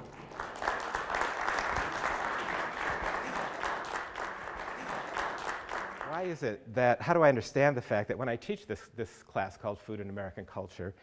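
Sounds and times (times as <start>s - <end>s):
audience clapping: 0.0s - 6.5s
man speaking: 6.0s - 11.0s.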